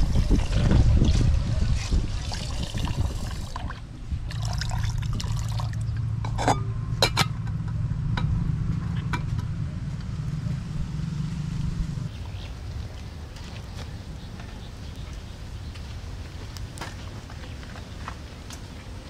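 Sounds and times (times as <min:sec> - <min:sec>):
low rumble: 0:00.0 - 0:12.8.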